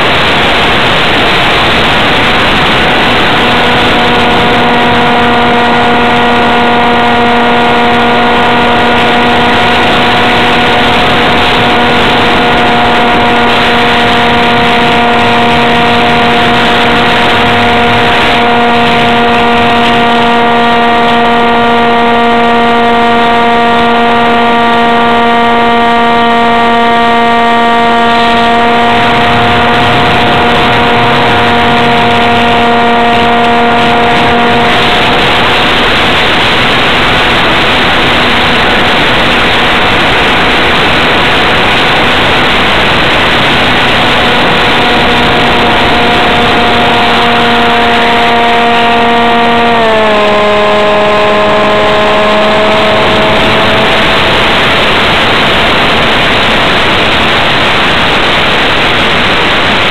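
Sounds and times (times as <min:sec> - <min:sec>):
electric motor and propeller whine: 0:00.0 - 0:59.9.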